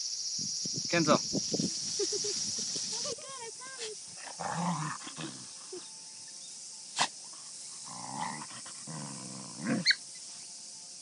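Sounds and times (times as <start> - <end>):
dogs growling: 4.3 - 5.7, 7.8 - 9.9.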